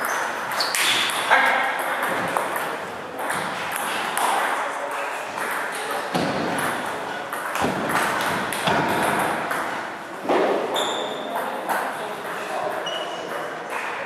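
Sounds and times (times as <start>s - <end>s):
brief high squeak: 10.7s - 11.2s, 12.8s - 13.3s.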